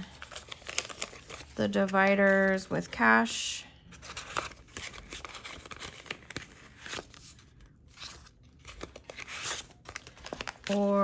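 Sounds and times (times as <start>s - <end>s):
paper bill and plastic crinkling: 0.0s - 3.2s, 3.9s - 11.0s.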